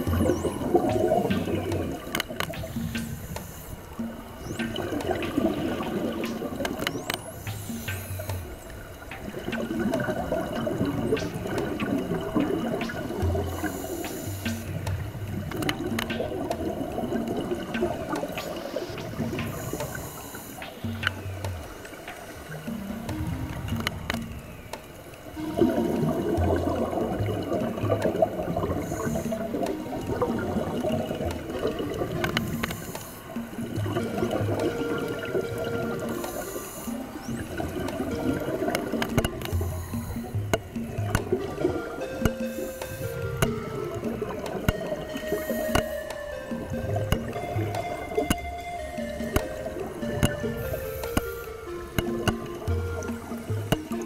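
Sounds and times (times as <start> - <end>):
sharp clicks: 0.0 - 16.7
underwater air bubbling: 0.0 - 54.0.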